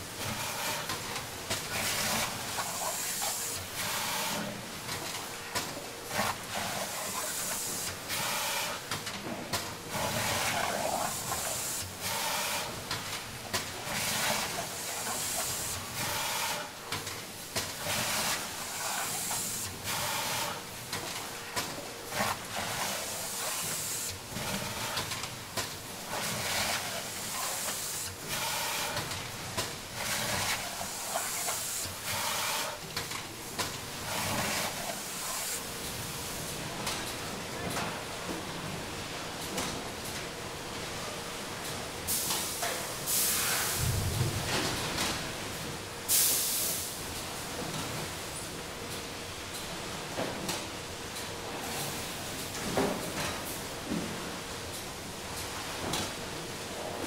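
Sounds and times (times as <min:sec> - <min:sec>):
pneumatic arms hissing and clacking: 0:01.8 - 0:04.5, 0:06.2 - 0:08.8, 0:09.9 - 0:20.6, 0:21.6 - 0:25.2, 0:26.1 - 0:29.2, 0:30.0 - 0:35.7, 0:42.1 - 0:43.8.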